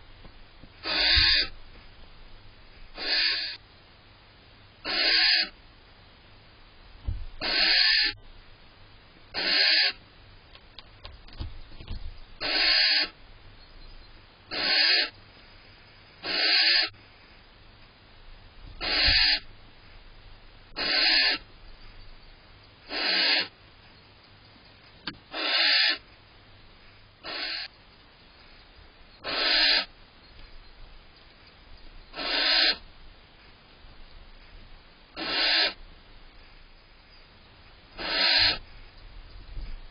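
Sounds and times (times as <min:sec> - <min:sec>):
owl hissing calls: 0:00.8 - 0:01.6, 0:02.9 - 0:03.6, 0:04.8 - 0:05.6, 0:07.4 - 0:08.2, 0:09.3 - 0:10.0, 0:12.4 - 0:13.2, 0:14.5 - 0:15.2, 0:16.2 - 0:17.0, 0:18.8 - 0:19.5, 0:20.7 - 0:21.5, 0:22.8 - 0:23.6, 0:25.3 - 0:26.1, 0:26.8 - 0:27.8, 0:29.2 - 0:30.0, 0:32.1 - 0:32.9, 0:35.2 - 0:35.8, 0:37.9 - 0:38.9.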